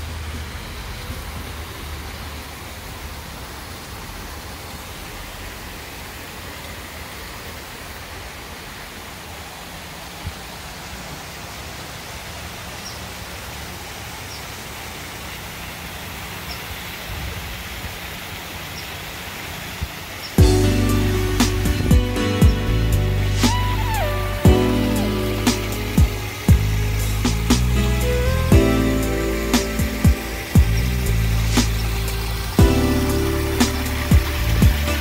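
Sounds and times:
rushing outdoor noise: 0.0 - 35.0
faint high chirps: 20.4 - 35.0
low rumble: 20.4 - 35.0.

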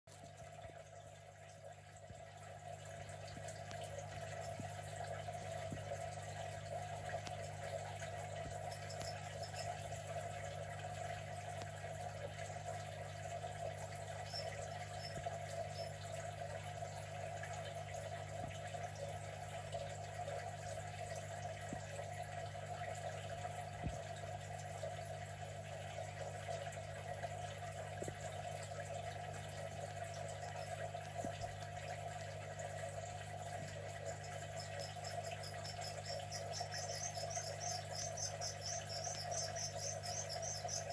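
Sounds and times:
pump humming with rushing water: 0.1 - 40.9
faint ticks: 7.1 - 10.1, 13.9 - 16.0, 33.0 - 40.9.

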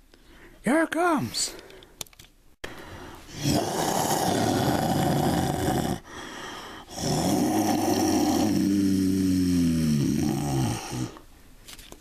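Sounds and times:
monster growling roar: 3.3 - 6.1, 6.9 - 11.2.

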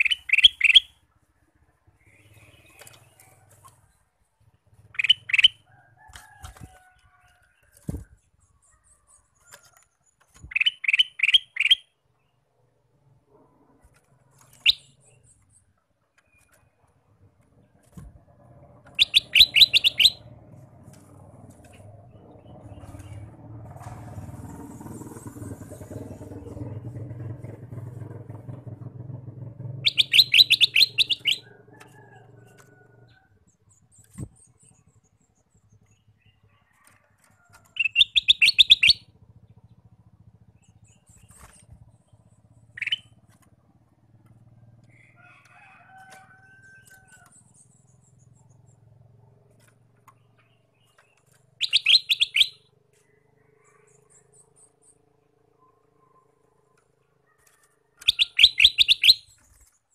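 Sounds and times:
bird rattling song: 0.0 - 1.1, 1.9 - 12.4, 13.0 - 23.7, 24.3 - 55.4, 56.2 - 59.9
bird whistled notes: 19.0 - 20.2, 29.8 - 31.4, 51.6 - 52.7, 58.0 - 59.3.

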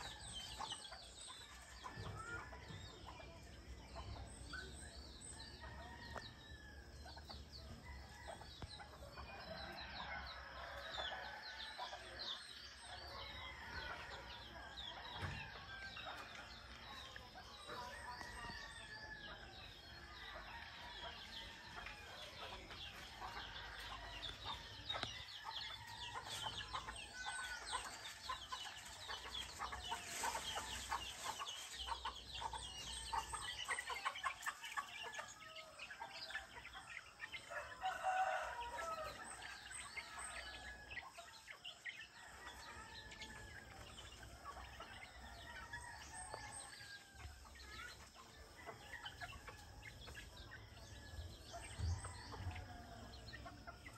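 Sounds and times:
small birds chirping: 0.0 - 53.9
roosters crowing: 9.1 - 16.4, 17.8 - 47.5.

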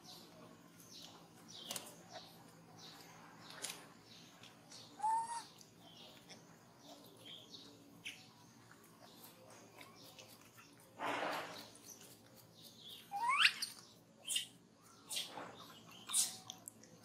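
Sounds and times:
baby monkey squeaking call: 5.0 - 5.5, 13.1 - 14.5.

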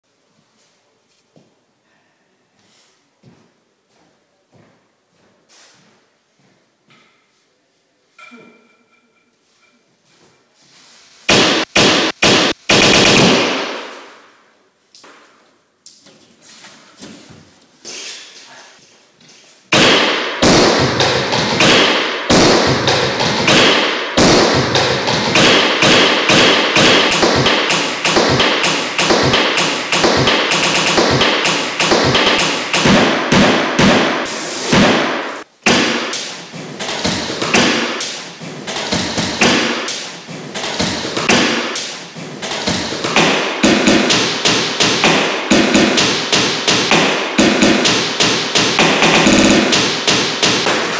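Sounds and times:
looped beat of hammer blows: 11.3 - 14.3, 19.7 - 50.9
knocks on walls: 20.4 - 34.2, 35.7 - 50.9.

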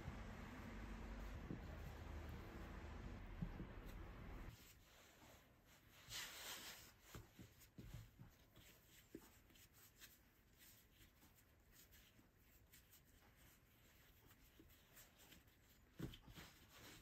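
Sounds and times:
hands rubbing and patting dough: 0.0 - 17.0.

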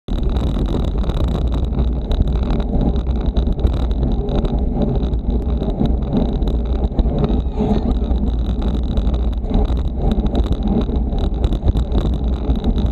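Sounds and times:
road and tyre noise: 0.0 - 12.9
wind buffeting microphone: 0.1 - 12.9.

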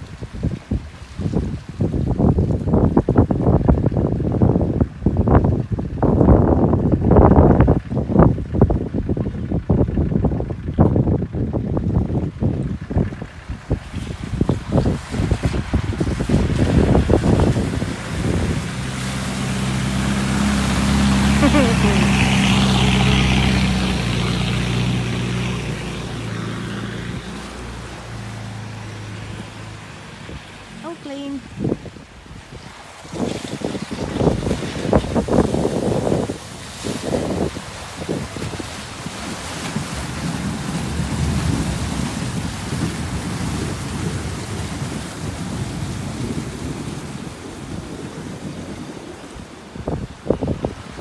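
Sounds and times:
water splashing and rushing: 0.0 - 51.0
vehicle engine running: 2.2 - 31.6.

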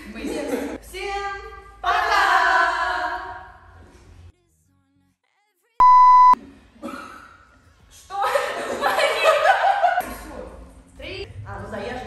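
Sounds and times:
high-pitched test tone beep: 5.8 - 6.4.

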